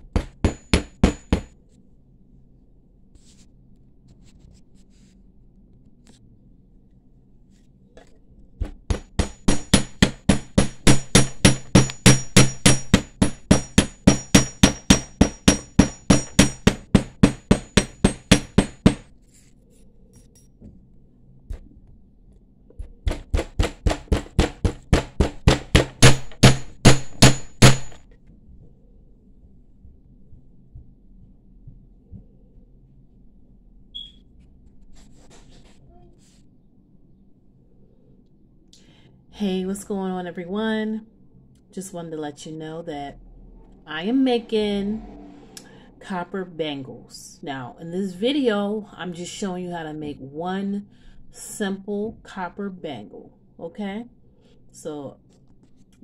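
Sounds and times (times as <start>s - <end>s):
hammer striking metal ringing: 0.1s - 1.6s, 8.9s - 19.0s, 24.4s - 28.0s.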